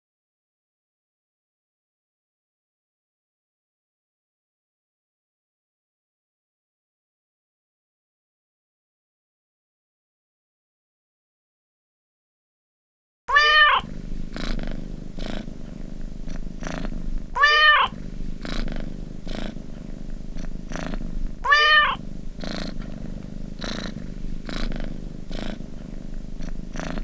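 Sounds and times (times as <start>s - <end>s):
cat meowing: 13.3s - 13.9s, 17.4s - 18.0s, 21.4s - 22.0s
cat purring: 13.3s - 27.0s.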